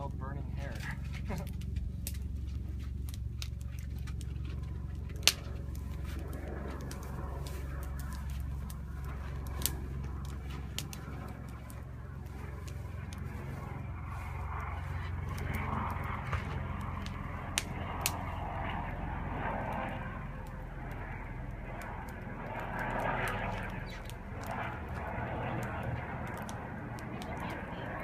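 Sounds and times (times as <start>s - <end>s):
campfire crackling: 0.0s - 28.0s
low rumble: 0.0s - 28.0s
sharp fire pops: 0.7s - 13.4s, 14.6s - 18.4s.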